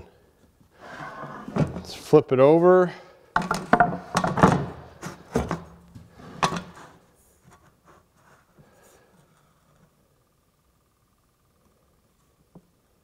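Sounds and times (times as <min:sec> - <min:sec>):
wood knocking and scraping on wood: 0:03.4 - 0:07.8.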